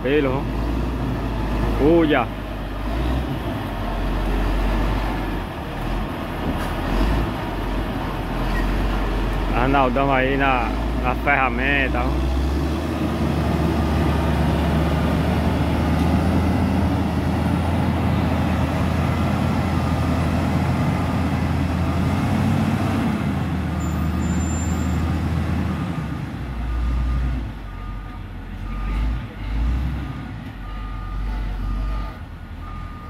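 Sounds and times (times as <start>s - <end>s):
diesel engine under load: 0.0s - 33.0s
reversing alarm beeping: 30.1s - 33.0s.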